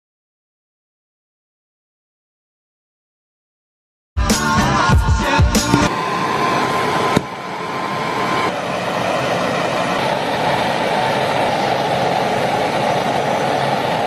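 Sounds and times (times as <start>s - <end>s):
gas torch flames hissing: 5.6s - 14.0s.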